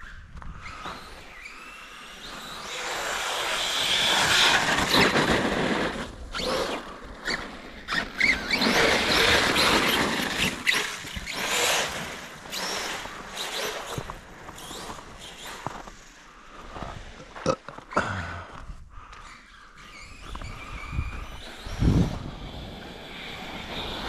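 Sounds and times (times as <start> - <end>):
tires churning through snow: 0.6 - 17.4, 19.2 - 24.0.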